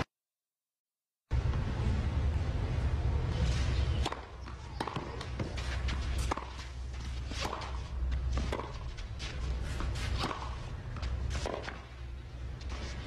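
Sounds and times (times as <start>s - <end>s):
low crowd hum: 1.3s - 13.0s
players' footsteps: 3.4s - 13.0s
racquet striking tennis ball: 3.9s - 9.0s, 9.6s - 12.0s
ball bouncing: 4.0s - 9.1s.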